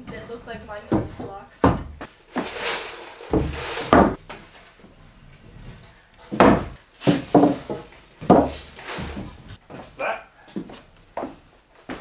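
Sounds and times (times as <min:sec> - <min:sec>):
wooden studs knocking on wood: 0:06.3 - 0:08.6.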